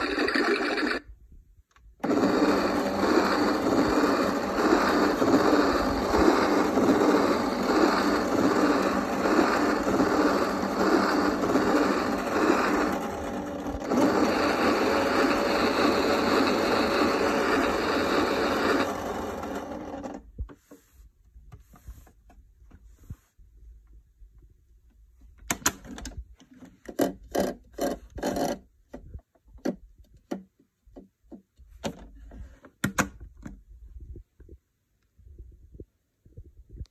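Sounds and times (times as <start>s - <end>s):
toy electronic sound effect: 0.0s - 1.1s, 2.0s - 19.8s.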